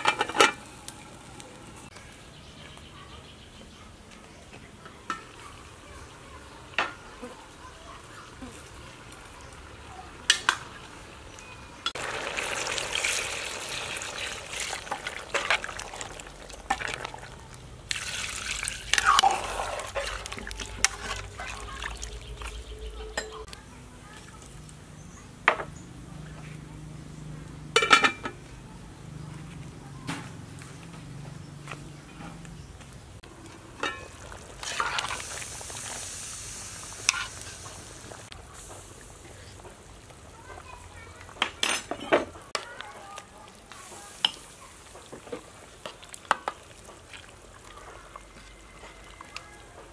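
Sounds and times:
curry bubbling in a pot: 5.1 - 22.8, 33.2 - 41.6, 42.5 - 49.9
ladle stirring liquid: 11.9 - 23.4, 33.4 - 36.1, 45.2 - 49.9
steady hiss: 34.7 - 39.9.

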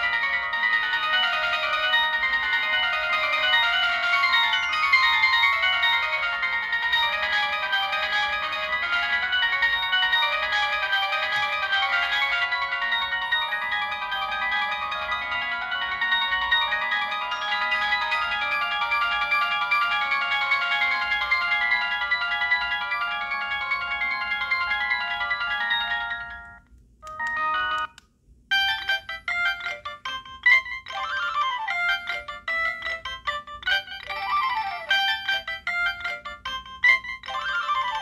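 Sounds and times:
busy ringtone with sliding notes: 0.0 - 38.0
mobile phone ringtone melody: 0.0 - 38.0.

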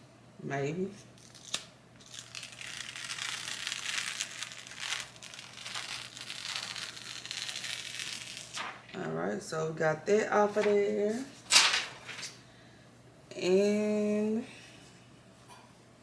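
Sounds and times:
plastic film peeling crinkling: 1.2 - 9.0.

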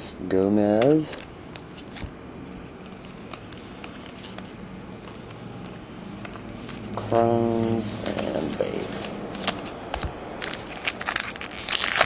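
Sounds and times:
steady room hiss: 0.0 - 12.0
cards clicking and sliding: 2.8 - 12.0.

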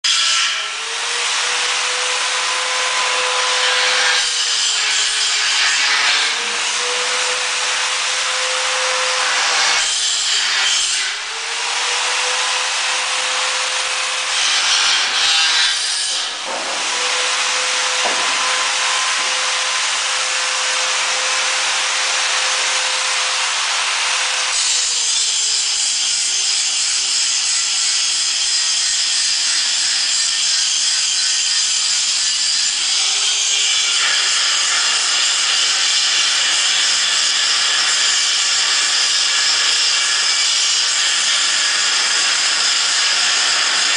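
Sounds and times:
power tool whining: 0.5 - 26.0.

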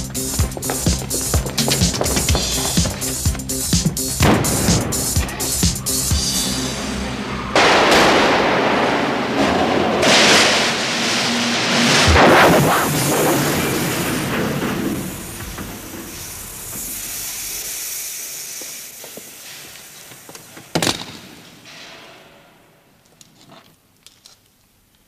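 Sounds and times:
loud hiss: 0.0 - 7.1, 10.4 - 21.8
sharp bang: 3.8 - 5.9, 7.5 - 17.6.

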